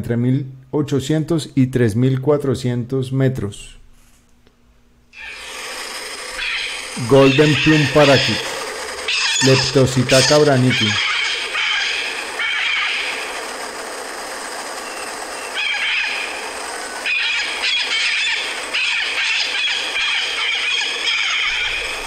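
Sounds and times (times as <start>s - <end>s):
parakeets screeching: 5.2s - 22.0s.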